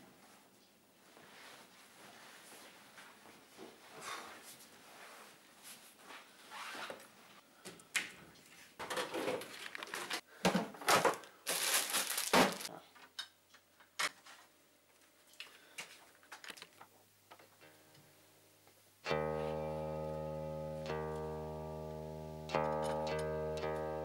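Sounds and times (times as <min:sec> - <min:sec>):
plastic bag rustling: 0:09.1 - 0:10.2, 0:10.8 - 0:12.7
plucked-string music: 0:19.0 - 0:24.0.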